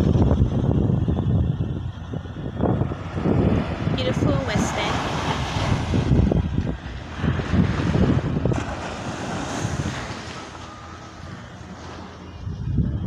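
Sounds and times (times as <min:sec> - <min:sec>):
wind buffeting microphone: 0:00.0 - 0:13.0
small waves breaking on sand: 0:07.0 - 0:12.2.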